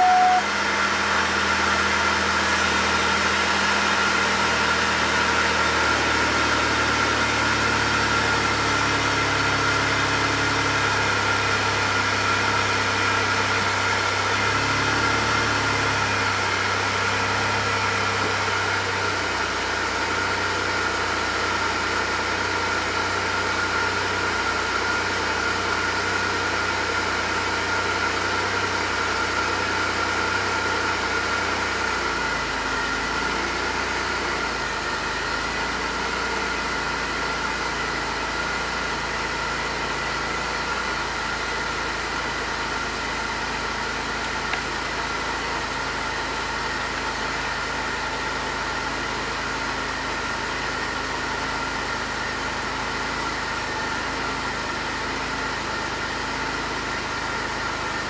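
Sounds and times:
steady high whine: 0.0 - 3.4
car engine idling roughly: 0.0 - 58.0.

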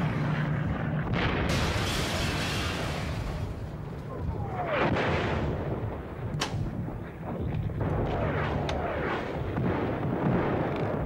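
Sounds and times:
low rumble of explosions: 0.0 - 11.0
sharp blast cracks: 1.1 - 5.9.

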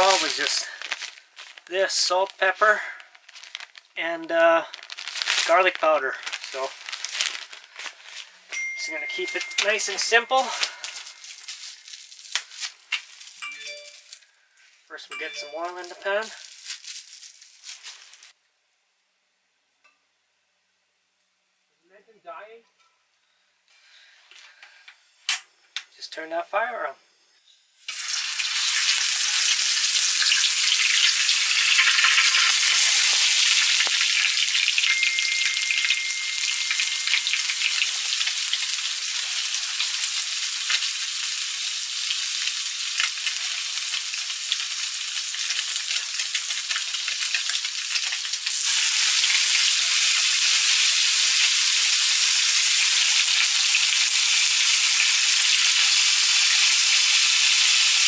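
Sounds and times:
fish sizzling in hot oil: 0.0 - 2.1, 9.1 - 13.4, 27.8 - 58.0.

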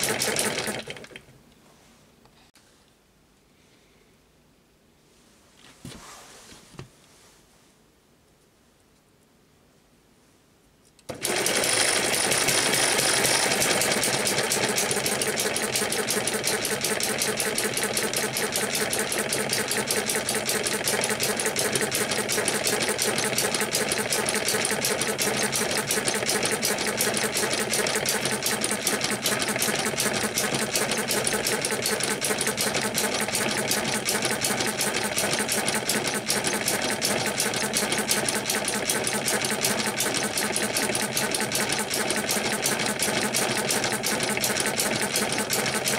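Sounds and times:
model gas engine clattering: 0.0 - 1.2, 11.1 - 45.9.

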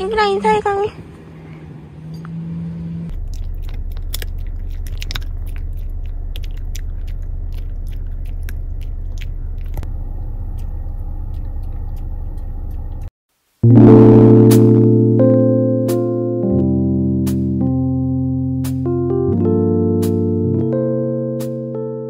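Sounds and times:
car road rumble: 0.0 - 13.1.

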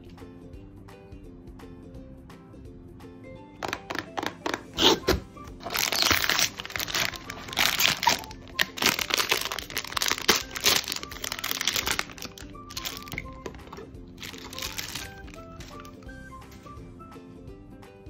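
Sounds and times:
clicks and knocks from box: 3.6 - 16.0
foil bag crinkling and tearing: 3.6 - 16.0.

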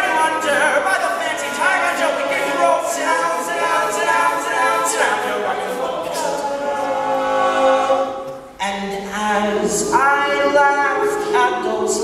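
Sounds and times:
male group singing in harmony: 0.0 - 12.0.

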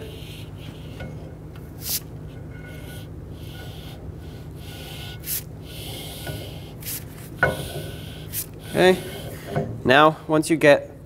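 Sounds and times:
metal shaft rubbing and scraping: 0.0 - 9.8
short hissy sounds: 1.8 - 2.1, 4.9 - 7.3, 8.1 - 9.4.

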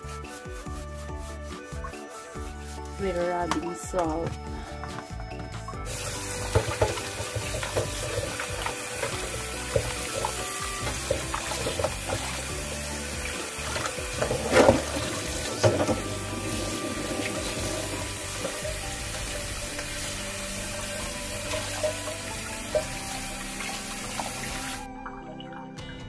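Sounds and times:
hands rubbing meat: 0.0 - 21.0
tap water splashing into bowl: 6.0 - 19.8.

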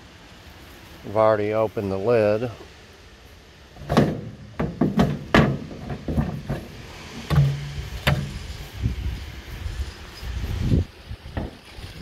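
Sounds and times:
sheet-metal panels knocking and clicking: 3.8 - 6.7.

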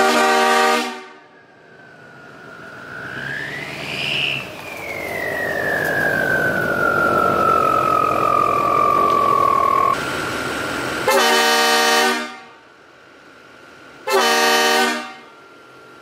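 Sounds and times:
train horn blasts: 0.0 - 1.3, 11.1 - 12.6, 14.0 - 15.4
rushing noise: 1.2 - 12.0
tone gliding down: 1.4 - 10.2.

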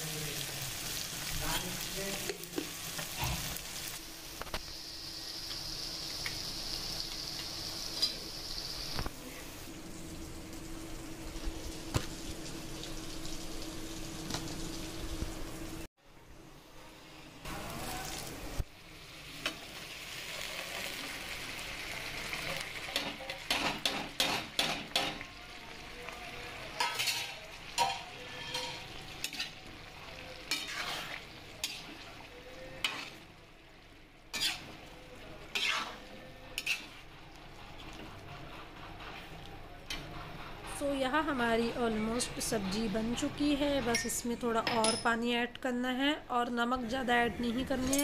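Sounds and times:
masala sizzling: 0.0 - 48.0
metal spoon scraping a pan: 26.7 - 33.2, 34.3 - 34.9, 35.5 - 37.0.

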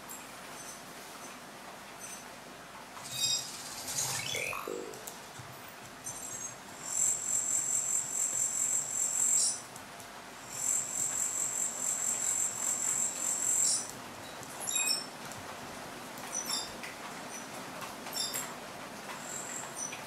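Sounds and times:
high-pitched pulsing electronic buzz: 3.1 - 5.1.

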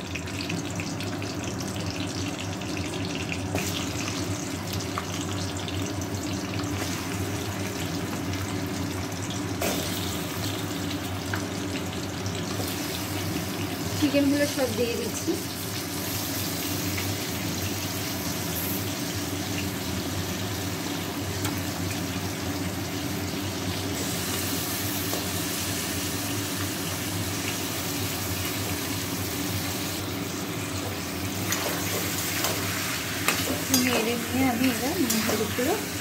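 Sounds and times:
chicken sizzling in hot oil: 0.0 - 36.0.

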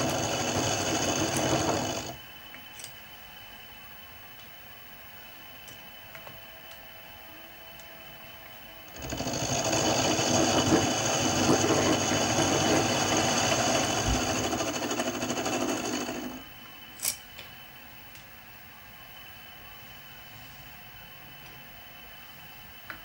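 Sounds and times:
milling machine whining: 0.0 - 2.5, 7.8 - 16.8.

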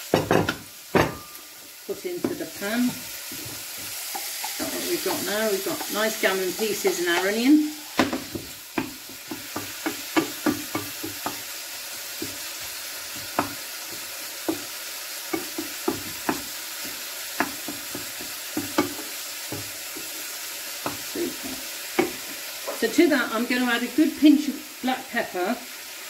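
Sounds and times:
meat and onion sizzling in pan: 0.0 - 26.0.

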